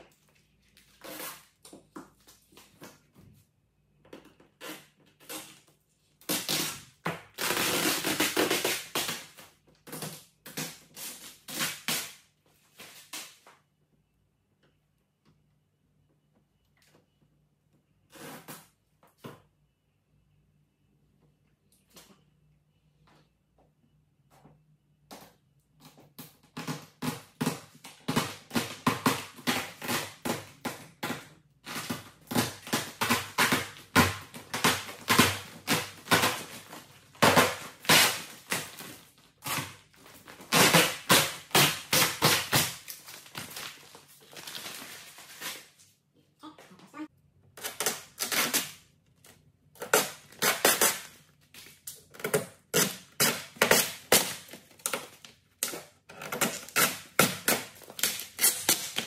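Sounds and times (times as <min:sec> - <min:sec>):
plastic film crinkling: 0:31.6 - 0:46.0.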